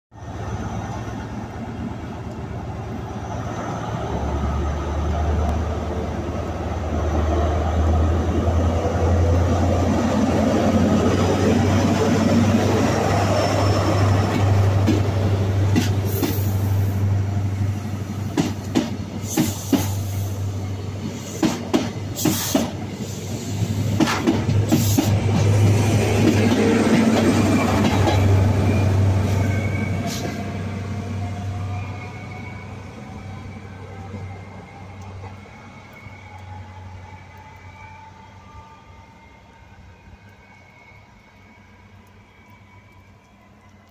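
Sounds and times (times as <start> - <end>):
diesel train engine: 0.1 - 43.9
train wheels clacking on rail joints: 11.1 - 16.7, 18.2 - 20.3, 21.0 - 23.0, 23.6 - 28.7.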